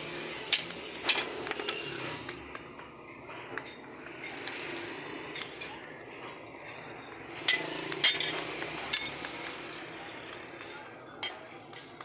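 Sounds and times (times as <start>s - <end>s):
metal pieces clinking: 5.4s - 5.8s, 7.5s - 9.2s.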